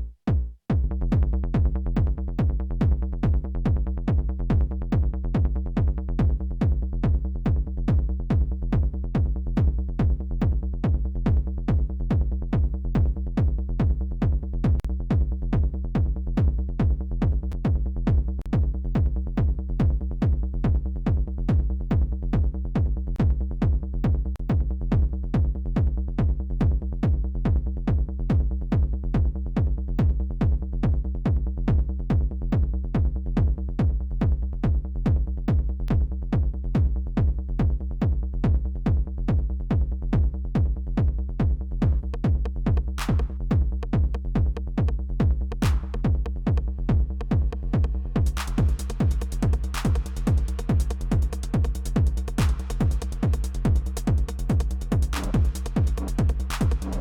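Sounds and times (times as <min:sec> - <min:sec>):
techno beat with heavy kick: 0:00.0 - 0:57.0
synth bassline: 0:45.3 - 0:57.0.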